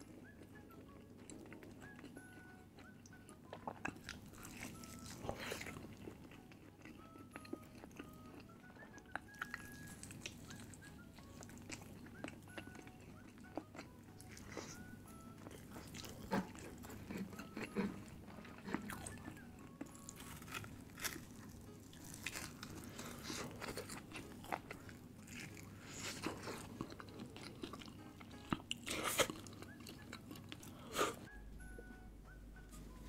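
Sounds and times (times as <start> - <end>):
crunching and chewing: 0.0 - 31.3.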